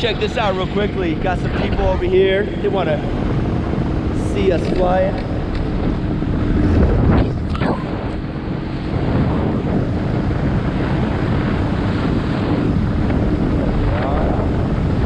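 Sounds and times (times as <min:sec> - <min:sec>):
paramotor engine droning: 0:00.0 - 0:15.0
wind buffeting microphone: 0:00.0 - 0:15.0.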